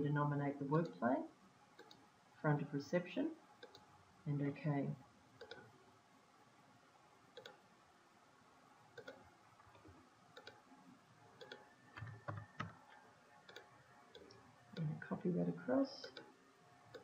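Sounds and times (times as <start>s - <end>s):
faint computer mouse clicks: 1.8s - 2.0s, 3.6s - 3.9s, 5.4s - 5.7s, 7.4s - 7.6s, 9.0s - 9.3s, 10.4s - 10.6s, 11.4s - 12.8s, 13.5s - 14.9s, 16.0s - 16.3s.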